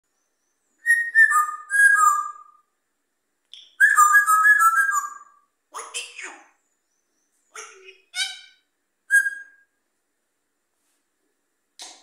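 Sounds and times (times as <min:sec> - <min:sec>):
parrot whistling a tune: 0:00.8 - 0:02.6, 0:03.6 - 0:05.4, 0:08.2 - 0:09.7.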